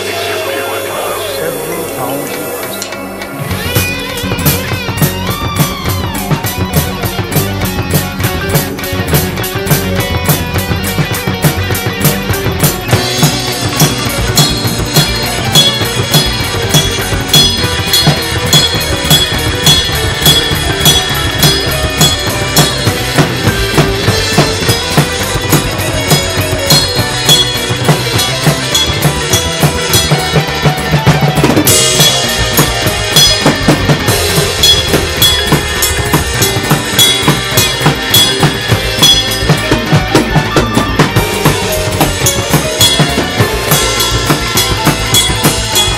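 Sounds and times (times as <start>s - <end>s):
bright cymbal wash: 0.0s - 3.6s
drum kit played fast: 0.0s - 45.9s.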